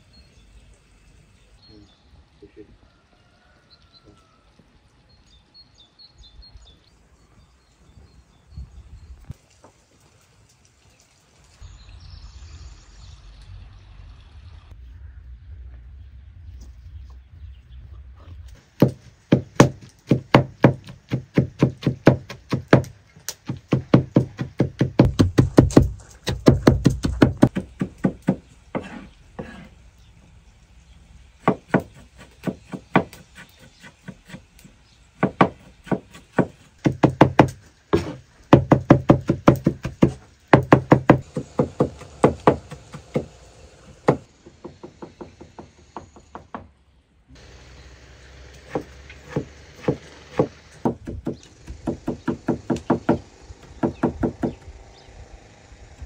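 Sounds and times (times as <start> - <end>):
knife chopping on wooden board: 18.8 - 29.6, 35.2 - 43.3, 48.7 - 54.6.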